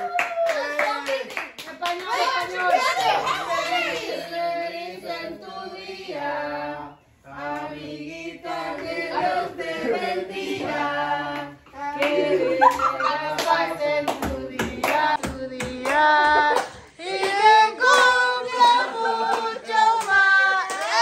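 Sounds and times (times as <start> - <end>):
group singing birthday song: 1.8 - 21.0
hand clapping: 12.0 - 21.0.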